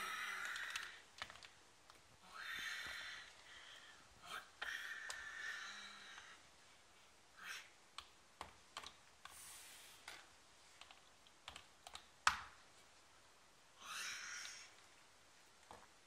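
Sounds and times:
soft rustles: 9.2s - 10.8s.

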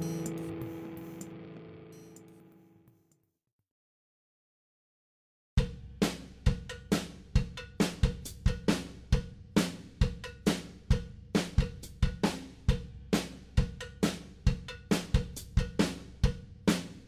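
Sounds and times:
drum kit beat: 0.0s - 1.3s, 5.6s - 17.0s.

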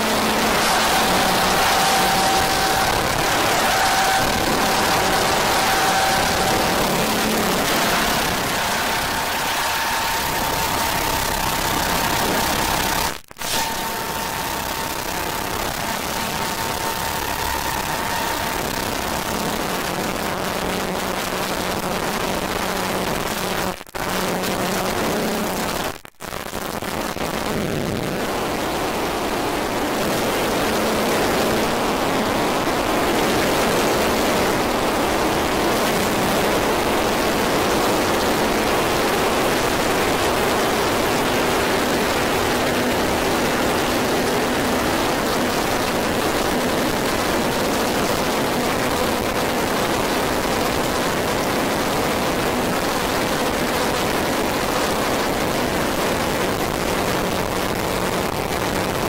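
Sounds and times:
synthesized noise drone: 0.0s - 59.0s.

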